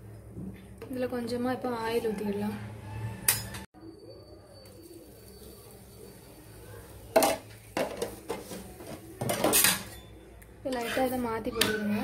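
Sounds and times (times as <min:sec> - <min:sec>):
metal utensils clinking on cookware: 0:07.1 - 0:12.0
utensils clattering: 0:07.2 - 0:10.1.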